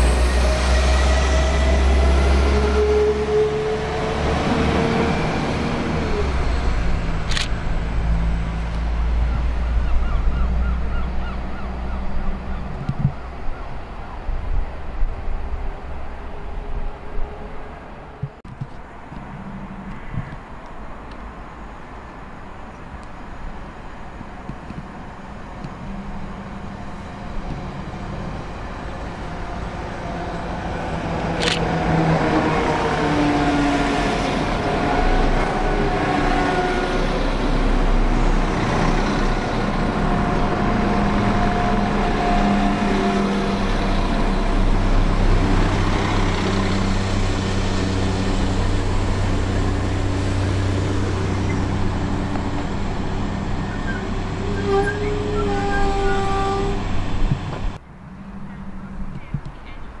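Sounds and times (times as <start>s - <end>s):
diesel train engines: 0.0s - 60.0s
wheels squealing: 46.1s - 57.2s.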